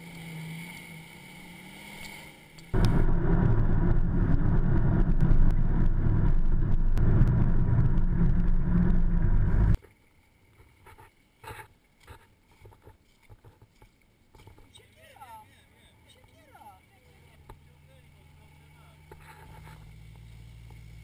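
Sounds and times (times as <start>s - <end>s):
vehicle engine and road noise: 0.0s - 9.8s, 14.4s - 21.0s.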